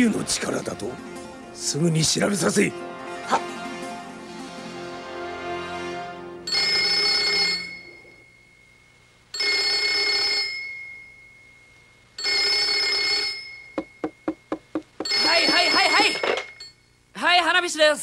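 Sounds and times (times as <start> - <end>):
background music: 0.0 - 8.2
desk telephone ringing: 6.5 - 8.2, 9.4 - 11.2, 12.2 - 16.8.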